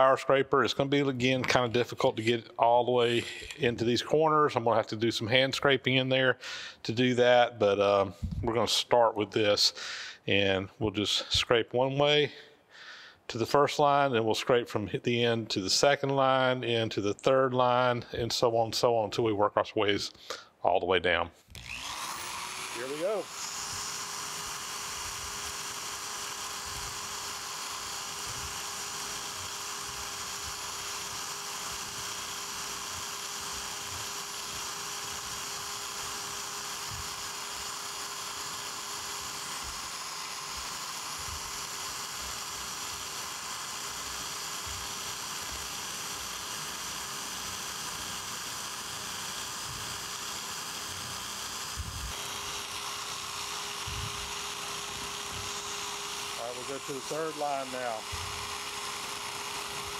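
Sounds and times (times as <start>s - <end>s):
electric power scraper buzzing: 3.0s - 3.6s, 21.5s - 59.9s.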